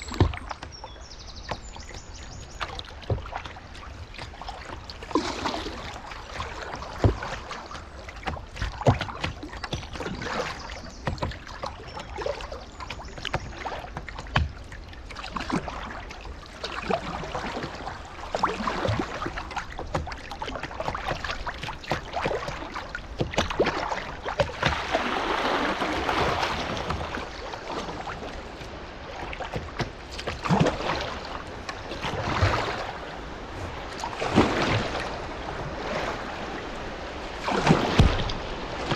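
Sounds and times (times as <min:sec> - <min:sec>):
paddle blades splashing: 0:00.0 - 0:38.9
water lapping at hull: 0:00.0 - 0:38.9
river water rushing: 0:23.6 - 0:38.9
knocks on kayak: 0:37.5 - 0:38.9.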